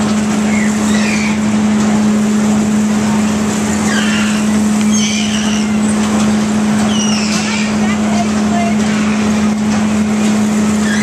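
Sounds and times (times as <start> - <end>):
machine hum: 0.0 - 11.0
mechanical rumble: 0.0 - 11.0
high squeals: 0.4 - 1.6, 3.8 - 6.0, 6.8 - 7.9, 10.7 - 11.0.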